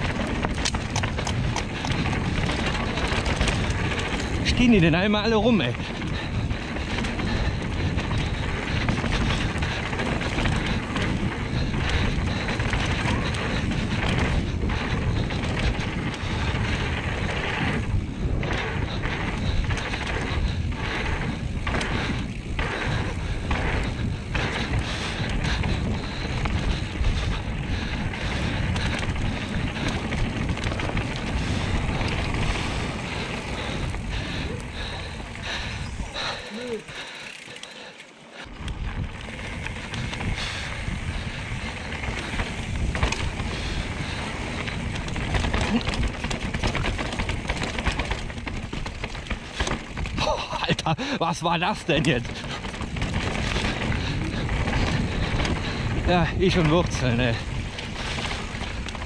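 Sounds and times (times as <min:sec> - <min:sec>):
wind rushing over microphone: 0:00.0 - 0:37.2, 0:38.4 - 0:59.0
bike tyres rumbling over dirt: 0:00.0 - 0:59.0.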